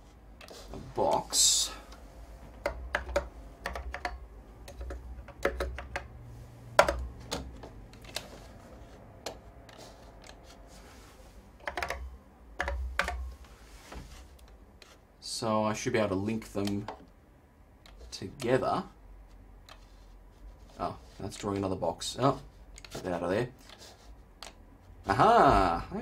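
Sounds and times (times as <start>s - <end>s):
typing on keyboard: 2.6s - 6.1s.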